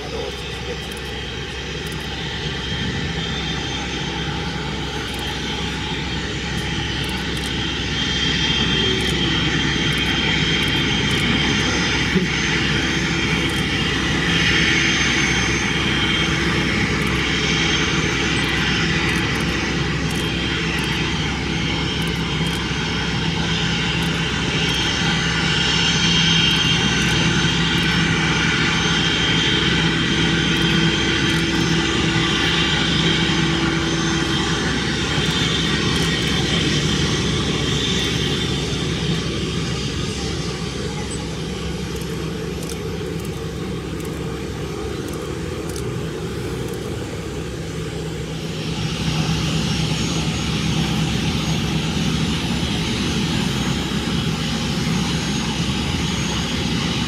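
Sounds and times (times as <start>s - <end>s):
jet engines whining: 0.0s - 57.0s.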